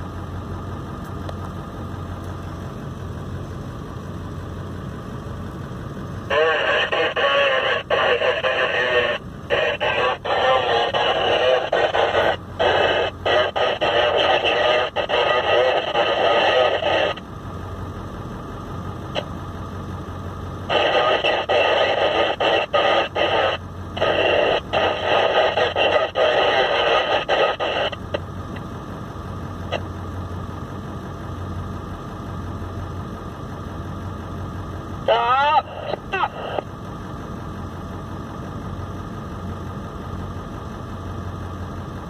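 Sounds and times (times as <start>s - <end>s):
low steady hum: 0.0s - 42.0s
hissy garbled radio transmission: 6.2s - 17.2s, 20.6s - 28.3s, 35.0s - 36.7s.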